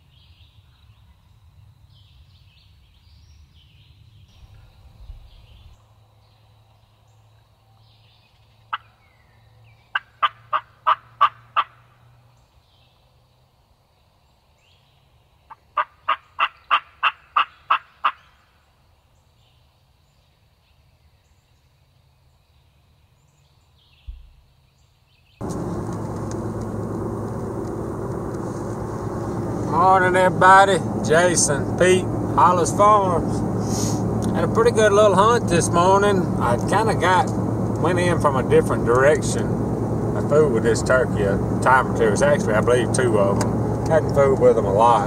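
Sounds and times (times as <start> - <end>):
turkey yelps: 10.0 - 11.7, 15.8 - 18.3.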